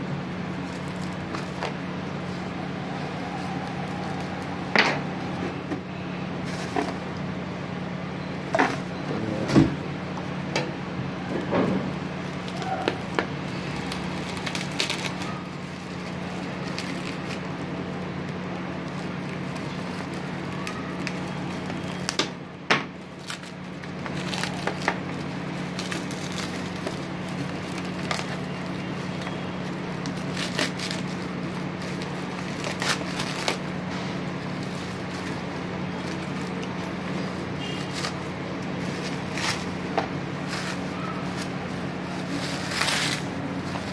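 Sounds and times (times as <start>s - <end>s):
bubble wrap crinkling: 0.0s - 9.0s, 9.8s - 43.9s
steady low hum: 0.0s - 43.9s.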